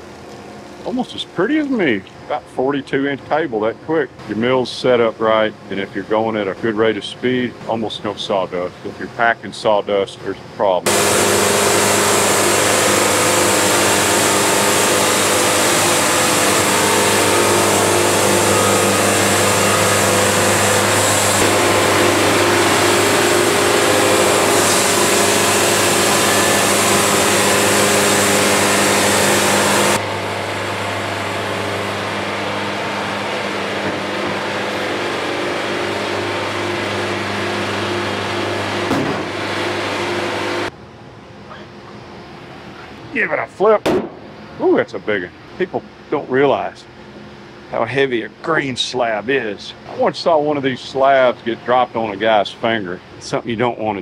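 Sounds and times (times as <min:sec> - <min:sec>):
sawmill engine running: 0:10.8 - 0:40.7
saw blade hissing through wood: 0:10.9 - 0:30.0.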